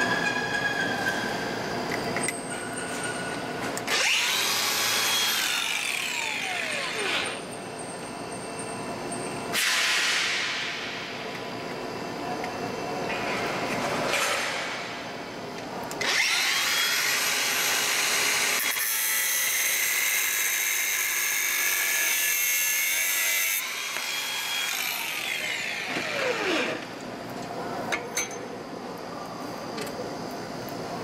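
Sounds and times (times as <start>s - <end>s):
angle grinder cutting steel: 3.9s - 7.4s, 16.0s - 26.9s.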